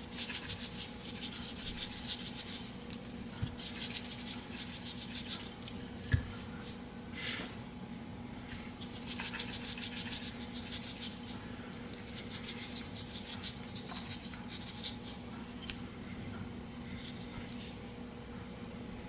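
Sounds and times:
steady low hum: 0.0 - 19.0
plastic spice shaker shaken: 0.1 - 2.8, 3.6 - 5.5, 8.8 - 11.4, 12.0 - 15.2.

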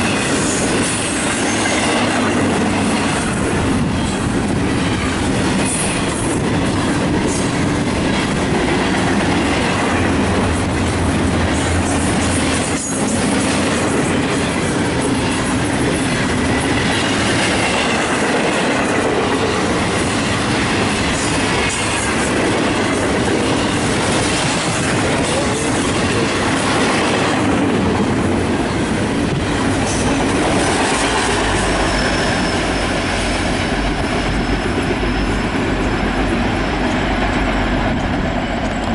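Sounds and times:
freight train rumbling past: 0.0 - 38.9
wheel squeal: 31.6 - 33.1, 34.2 - 35.6.

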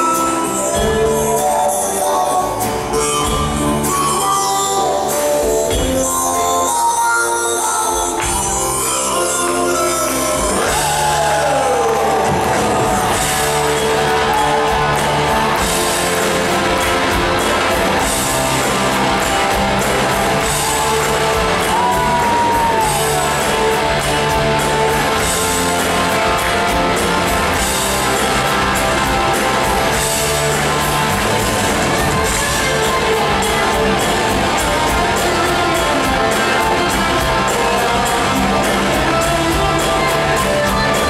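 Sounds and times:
rock band playing live: 0.0 - 41.0
bent electric guitar notes: 8.2 - 41.0.

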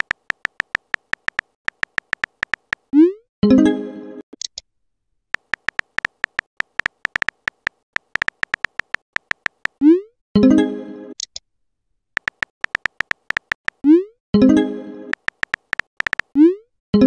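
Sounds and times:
keyboard typing ticks: 0.0 - 2.9, 5.4 - 9.8, 12.2 - 13.9, 15.1 - 16.4.

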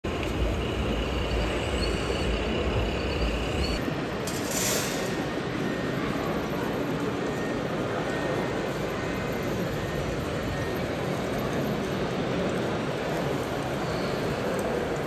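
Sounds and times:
bus engine rumble: 0.1 - 15.0
air brake hiss: 4.3 - 5.2.

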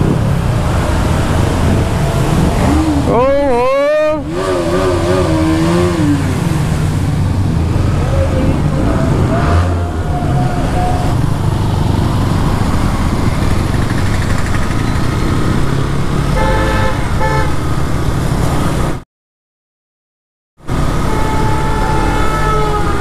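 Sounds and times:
road and wind noise: 0.0 - 19.0, 20.6 - 23.0
motorcycle engine running: 12.3 - 15.8
horn tooting: 16.3 - 17.6, 20.7 - 23.0.

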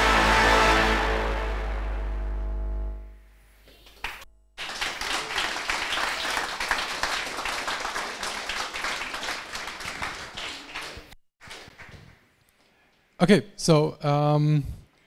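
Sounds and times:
music closing chord with drone: 0.0 - 3.1
audience applause: 4.6 - 12.1.

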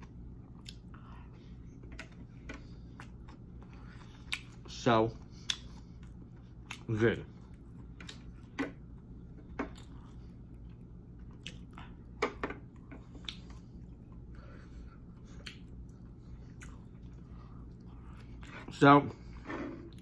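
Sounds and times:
wet chewing mouth smacks: 5.4 - 6.9, 13.1 - 13.7, 15.2 - 18.5.

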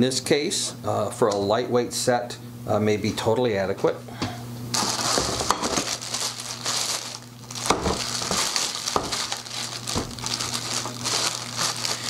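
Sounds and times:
plastic bags crinkling: 4.7 - 12.0.

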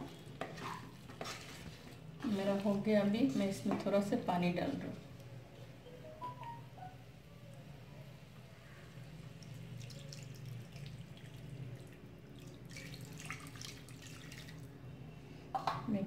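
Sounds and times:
water pouring into a pan: 9.2 - 14.7.

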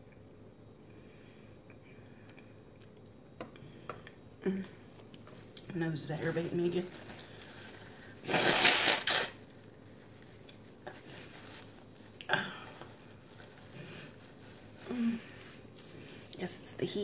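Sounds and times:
woman blowing her nose: 8.2 - 9.4.

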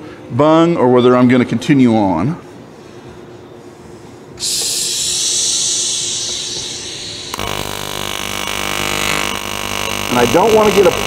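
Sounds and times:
welding arc hissing and buzzing: 4.4 - 11.0.

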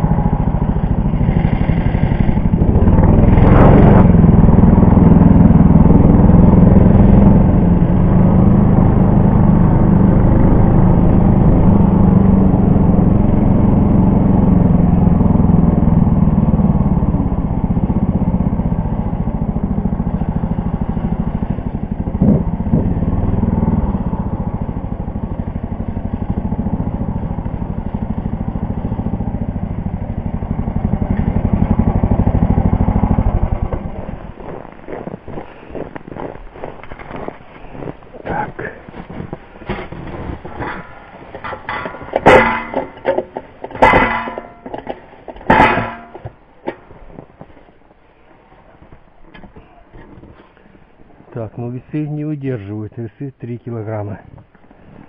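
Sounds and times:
snow tow engine running: 0.0 - 46.3.

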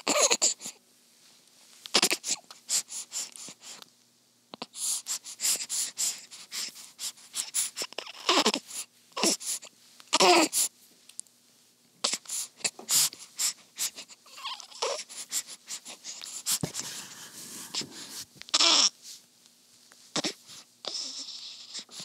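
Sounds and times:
baby grunting and whimpering: 0.0 - 0.7, 1.9 - 2.4, 7.7 - 10.7, 12.0 - 13.1, 13.8 - 16.1, 17.5 - 19.0, 20.1 - 22.0.

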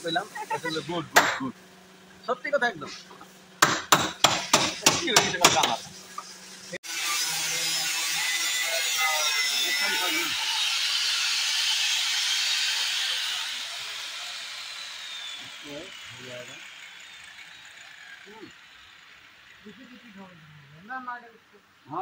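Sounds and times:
hammer striking chisel on metal: 1.2 - 1.4, 3.6 - 5.8.

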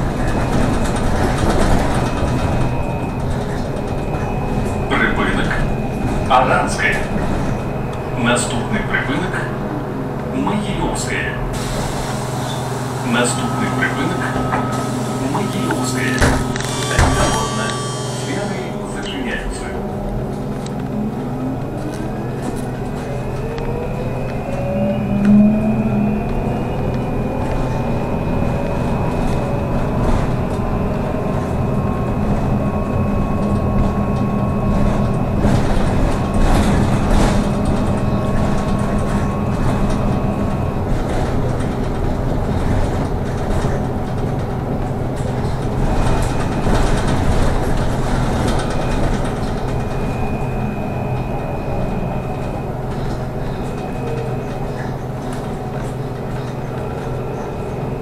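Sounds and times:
electric drive whine: 11.5 - 42.4
thin high tone: 12.2 - 19.6.

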